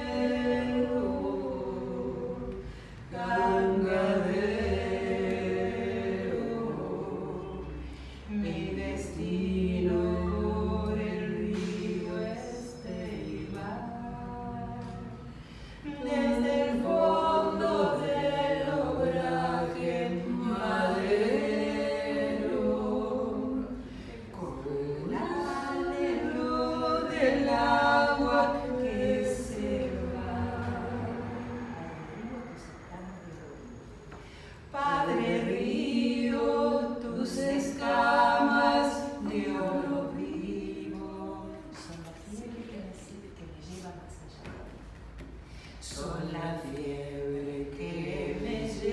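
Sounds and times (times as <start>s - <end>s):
women singing unaccompanied: 0.0s - 32.8s, 34.1s - 43.0s, 45.8s - 48.9s.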